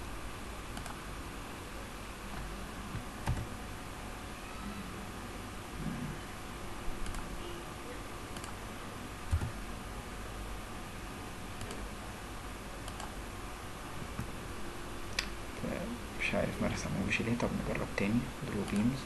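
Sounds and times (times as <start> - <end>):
steady low hum: 0.0 - 19.0
computer mouse clicks: 0.8 - 1.0, 2.3 - 3.5, 7.0 - 7.3, 8.3 - 8.6, 9.3 - 9.6, 11.6 - 11.8, 12.8 - 13.2, 18.6 - 18.9.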